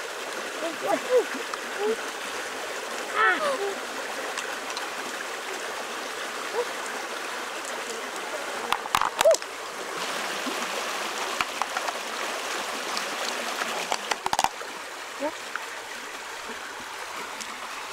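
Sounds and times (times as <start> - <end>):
shallow stream rushing: 0.0 - 17.9
shells clicking on rocks: 11.4 - 12.0.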